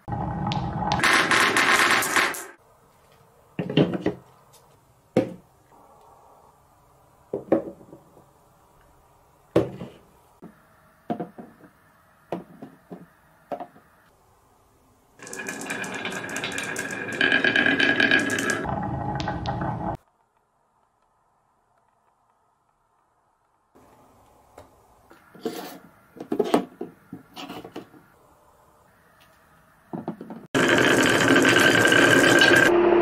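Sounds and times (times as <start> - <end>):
rattling clatter of blocks: 15.2 - 18.7.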